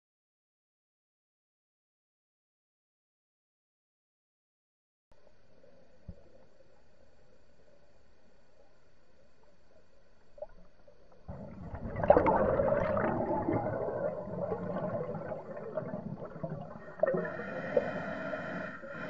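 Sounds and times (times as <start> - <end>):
diver breathing bubbles underwater: 11.3 - 19.0.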